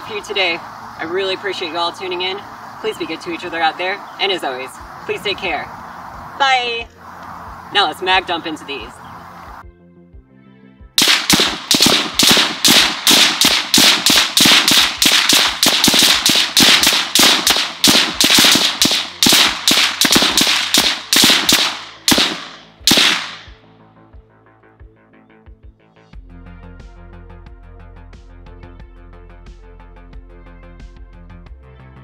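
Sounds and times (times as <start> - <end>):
rapid gunshots: 11.0 - 23.5.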